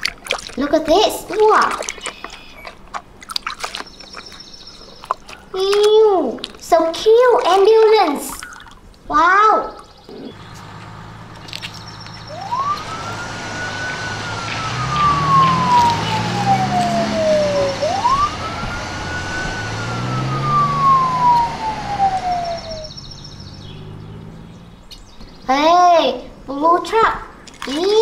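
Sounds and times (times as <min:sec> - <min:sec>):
low engine rumble: 0:10.0 - 0:26.0
wailing siren: 0:10.4 - 0:23.0.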